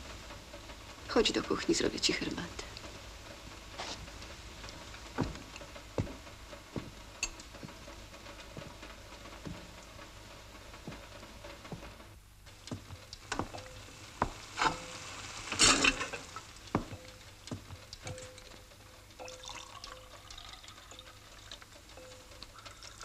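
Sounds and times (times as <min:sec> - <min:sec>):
water running into a kettle: 0:13.2 - 0:17.1, 0:19.2 - 0:23.0
water rushing from a tap: 0:19.2 - 0:21.6
crockery clinking: 0:19.2 - 0:23.0.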